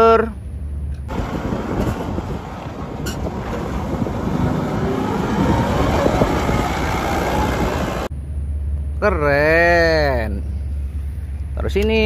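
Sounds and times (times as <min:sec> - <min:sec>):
wind rumbling on microphone: 0:00.8 - 0:08.1
forklift engine running: 0:01.1 - 0:08.2.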